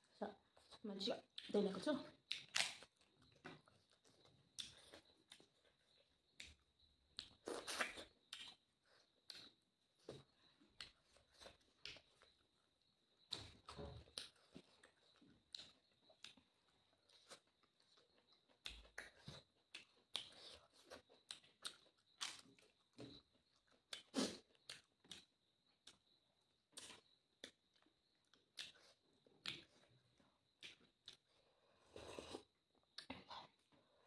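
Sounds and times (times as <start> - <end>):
chewing and wet mouth clicks: 0.4 - 33.8.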